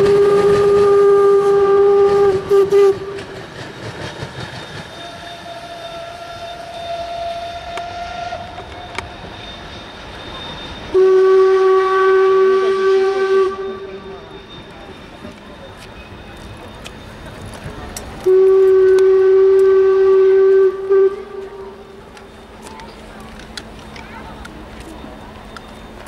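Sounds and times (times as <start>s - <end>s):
steam locomotive whistle blast: 0.0s - 16.2s, 18.2s - 22.3s
passenger coaches rattling past: 0.0s - 26.0s.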